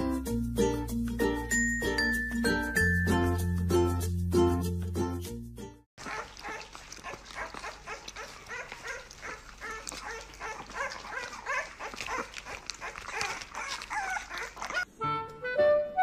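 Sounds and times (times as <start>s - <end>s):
dog vocalising: 6.0s - 14.9s.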